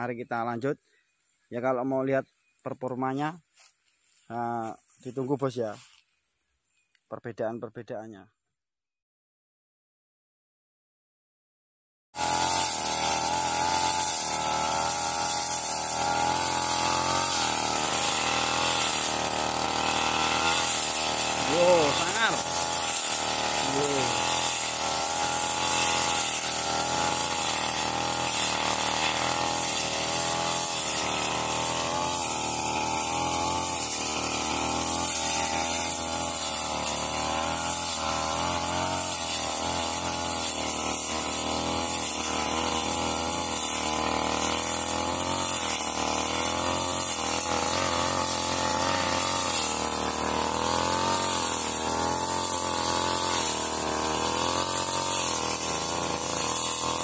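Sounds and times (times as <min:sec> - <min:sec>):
blade cutting grass and undergrowth: 0:00.0 - 0:07.0, 0:12.2 - 0:57.0
brush cutter engine running: 0:12.2 - 0:57.0.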